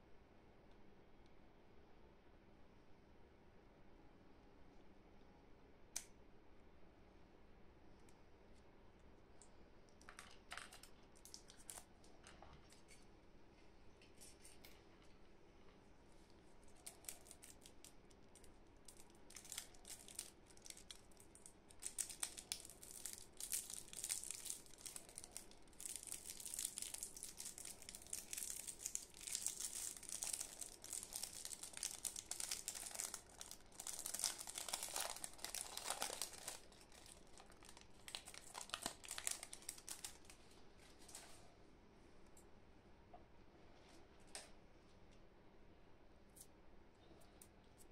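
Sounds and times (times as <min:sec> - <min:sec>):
plastic candy wrappers crinkling: 0:10.0 - 0:13.0, 0:16.7 - 0:40.5.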